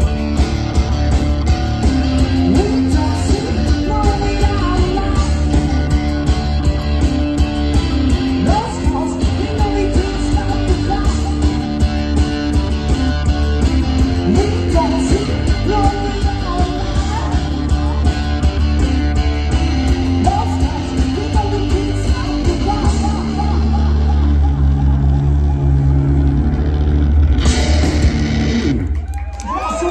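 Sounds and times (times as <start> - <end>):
electric guitar riffing: 0.0 - 29.0.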